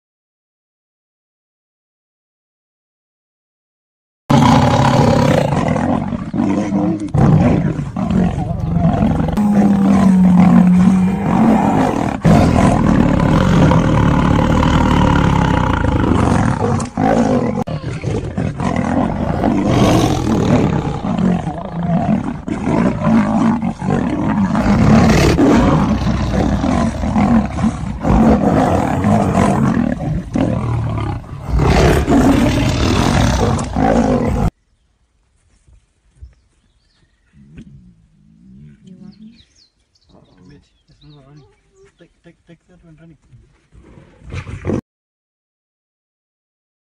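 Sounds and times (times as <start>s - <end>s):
big cats growling and roaring: 4.3s - 34.5s.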